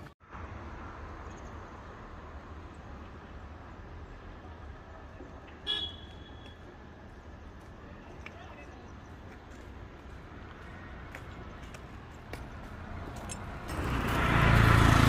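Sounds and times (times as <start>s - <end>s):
low street rumble: 0.0s - 15.0s
vehicle horn toot: 5.6s - 6.6s.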